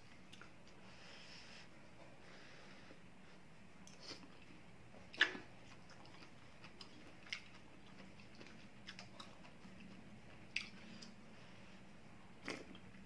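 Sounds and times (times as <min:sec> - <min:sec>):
person chewing food: 0:03.8 - 0:11.2, 0:12.4 - 0:13.0.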